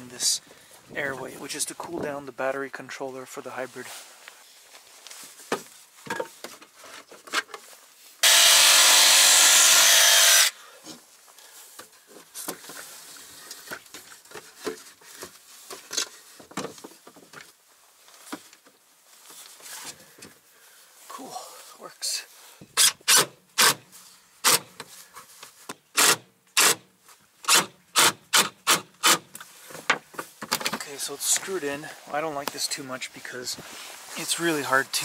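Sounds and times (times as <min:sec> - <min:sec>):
cordless power tool running: 0:08.2 - 0:10.6.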